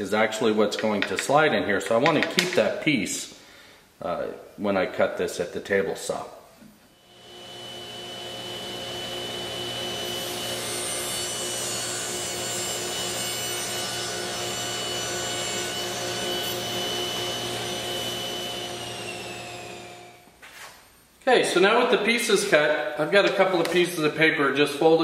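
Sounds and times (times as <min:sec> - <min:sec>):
table saw cutting plywood: 0:07.1 - 0:20.2.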